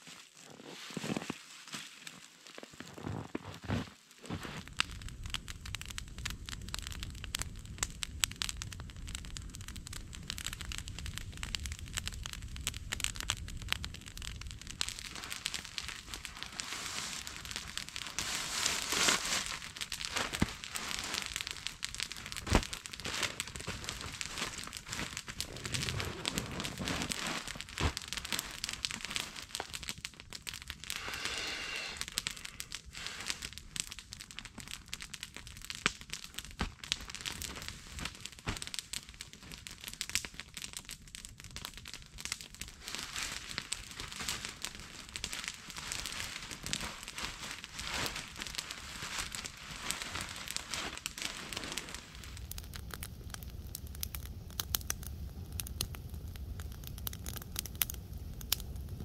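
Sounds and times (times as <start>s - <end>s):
nylon bags rustling: 0.0s - 4.6s, 15.0s - 29.7s, 42.8s - 52.4s
sharp crackles: 0.0s - 59.0s.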